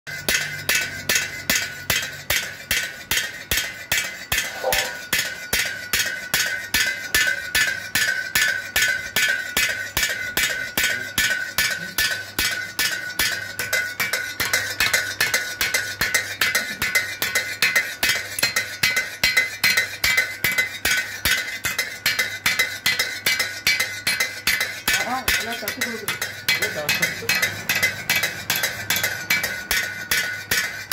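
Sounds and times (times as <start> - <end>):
mechanical hammer striking steel: 0.1 - 13.7.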